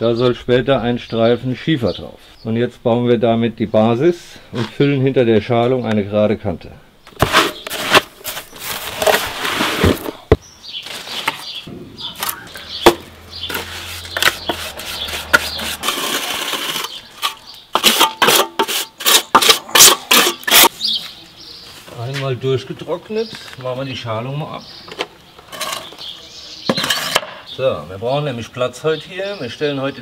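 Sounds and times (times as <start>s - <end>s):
trowel scraping mortar: 7.2s - 10.3s, 12.2s - 20.7s.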